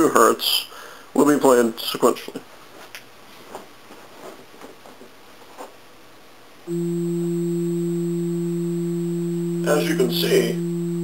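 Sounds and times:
steady bass tone: 6.7s - 11.0s.

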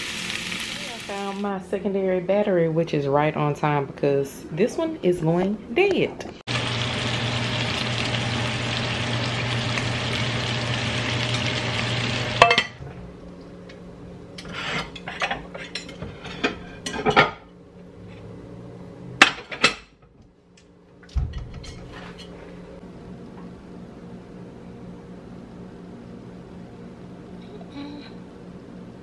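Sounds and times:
fish sizzling in a pan: 0.0s - 1.5s, 6.5s - 12.6s.

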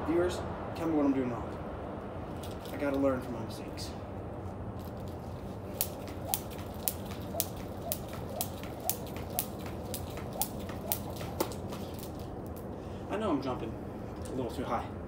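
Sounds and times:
jump rope slapping concrete: 4.8s - 12.7s.

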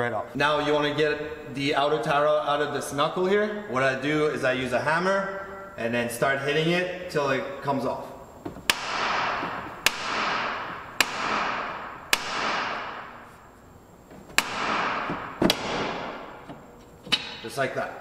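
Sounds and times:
sledgehammer striking metal: 8.7s - 13.3s, 14.4s - 16.4s.

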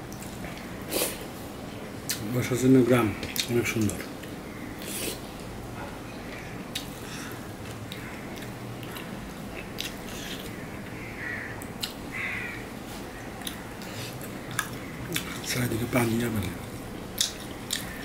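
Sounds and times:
soft chewing: 3.2s - 11.0s, 11.6s - 12.0s, 12.9s - 15.6s, 16.5s - 18.0s.

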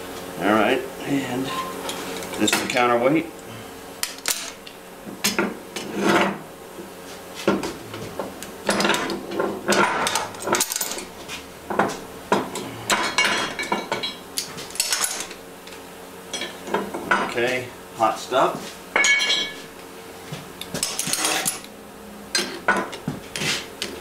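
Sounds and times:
metal clanking and scraping: 8.7s - 15.4s, 20.8s - 21.7s.

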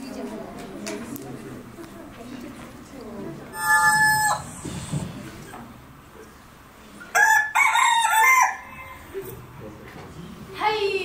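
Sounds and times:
rooster crowing: 3.6s - 4.6s, 7.1s - 9.1s.

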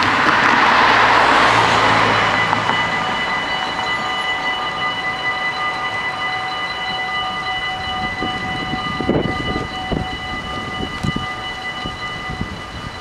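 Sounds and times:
level crossing bells ringing: 0.0s - 13.0s.

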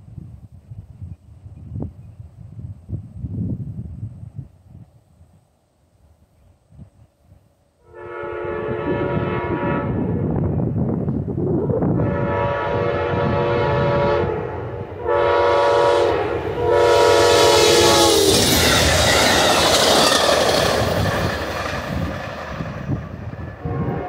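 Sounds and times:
locomotive horn blasts: 7.8s - 10.2s, 12.0s - 18.4s, 23.6s - 24.0s
train wheels clattering on rails: 17.5s - 23.6s.

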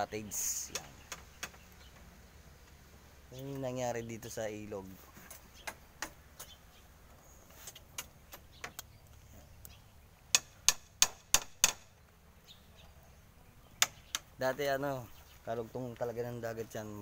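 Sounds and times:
hammer striking wood: 10.3s - 11.9s.

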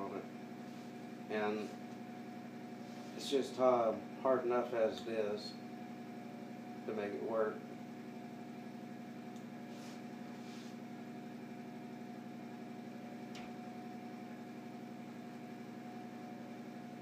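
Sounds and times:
steady mechanical hum: 0.0s - 17.0s.

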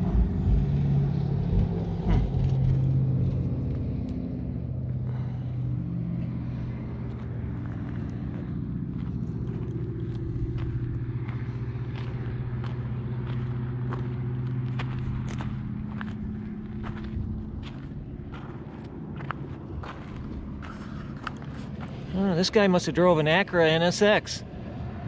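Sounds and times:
low engine hum: 0.0s - 25.0s
footsteps crunching on gravel: 6.9s - 22.6s.

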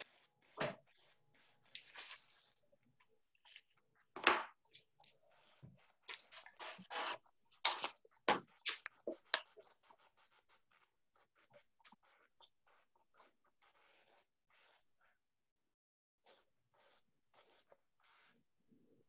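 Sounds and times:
paintbrush scratching on wood: 4.7s - 15.2s, 16.2s - 18.4s.

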